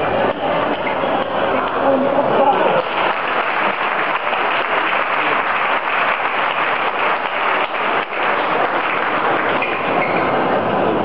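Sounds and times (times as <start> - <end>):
crowd applauding: 2.4 - 10.3.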